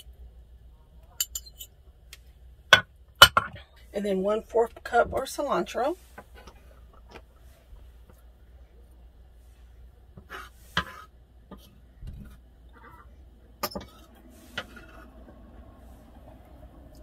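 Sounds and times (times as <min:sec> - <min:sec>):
low steady hum: 0:00.0 - 0:17.0
utensils and dishes clinking: 0:01.2 - 0:01.7, 0:13.6 - 0:15.0.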